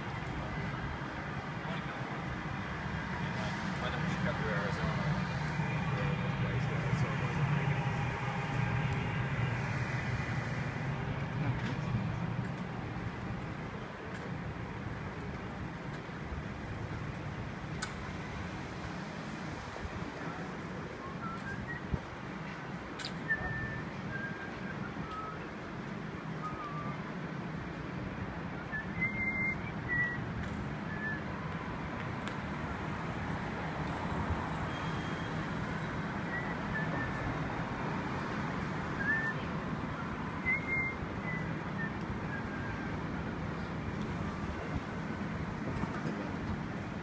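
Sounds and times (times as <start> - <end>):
traffic hum: 0.0 - 47.0
person whistling a tune: 21.0 - 22.1, 23.2 - 25.5, 26.4 - 27.0, 28.6 - 30.2, 36.3 - 37.4, 39.0 - 42.9.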